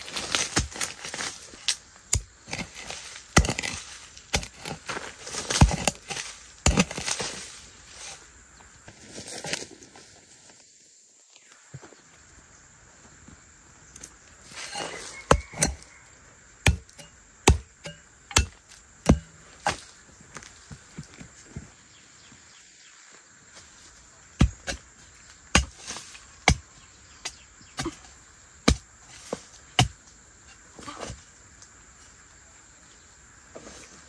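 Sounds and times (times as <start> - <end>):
hoe chopping into earth: 0.0 - 7.6, 14.5 - 15.8, 16.6 - 20.5, 24.4 - 24.8, 25.4 - 30.0.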